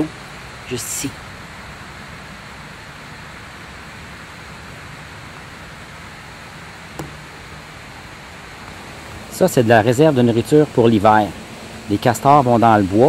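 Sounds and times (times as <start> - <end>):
outdoor background hiss: 0.0 - 13.0
sharp click: 7.0 - 7.3.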